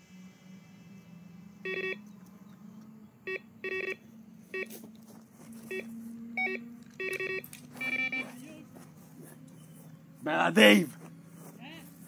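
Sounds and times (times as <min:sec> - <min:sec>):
bite alarm two-tone beeps: 0:01.7 - 0:02.0, 0:03.3 - 0:04.7, 0:05.7 - 0:08.3.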